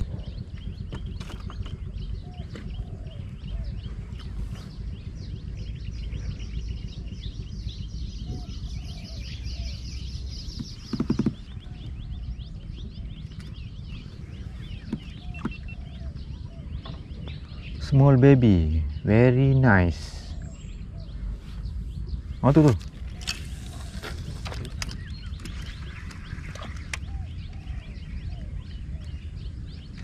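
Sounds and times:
birds chirping: 0.0 - 30.0
steady low rumble: 0.0 - 30.0.

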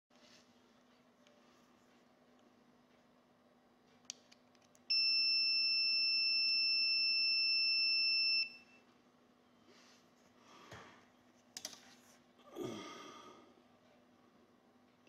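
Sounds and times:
multimeter continuity beep: 4.9 - 8.9.

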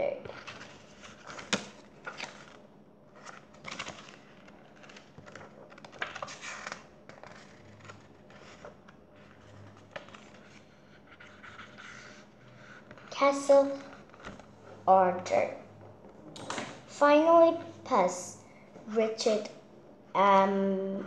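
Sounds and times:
book pages turning: 0.2 - 14.8.

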